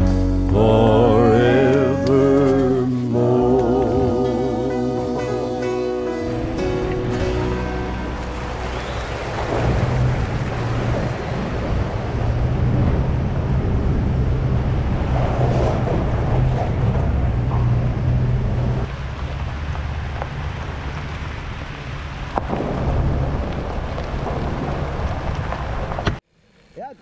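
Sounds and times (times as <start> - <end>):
wind rushing over microphone: 8.3 - 18.9.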